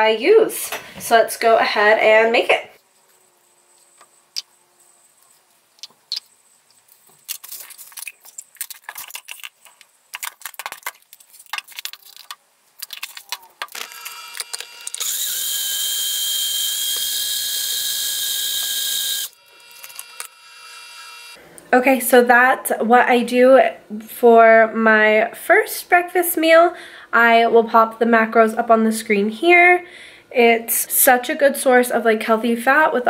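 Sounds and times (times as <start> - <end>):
blender whining: 13.7 - 21.4.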